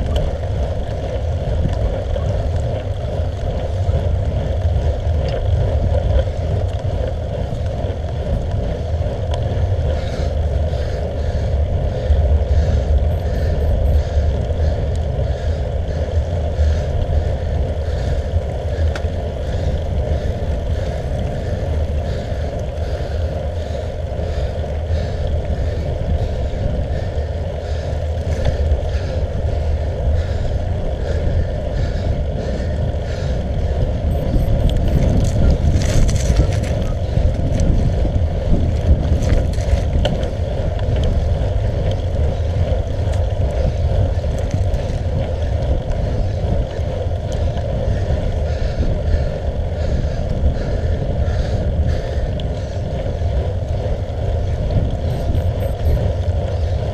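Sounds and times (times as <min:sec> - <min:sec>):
tyre and road rumble: 0:00.0 - 0:56.9
wind: 0:00.0 - 0:56.9.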